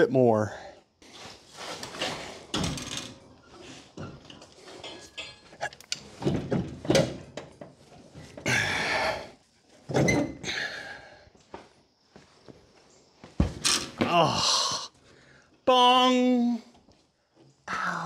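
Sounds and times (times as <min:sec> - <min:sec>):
metal clanks and knocks: 0:04.0 - 0:08.4.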